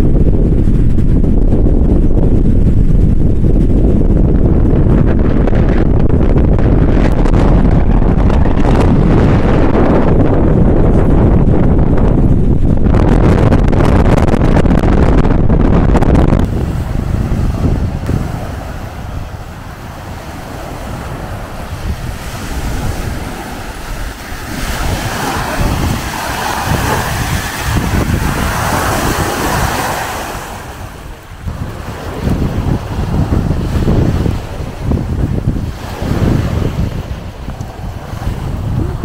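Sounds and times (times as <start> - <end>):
wind buffeting microphone: 0.0 - 39.0
small waves washing on shore: 16.5 - 39.0.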